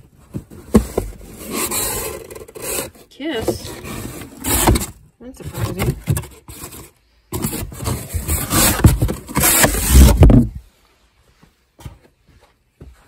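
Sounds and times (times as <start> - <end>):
cardboard boxes scraping: 0.0 - 11.2.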